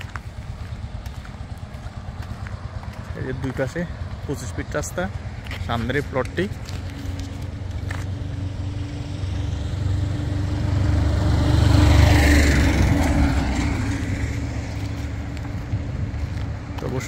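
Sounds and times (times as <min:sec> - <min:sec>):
pickup truck driving past: 0:06.6 - 0:16.8.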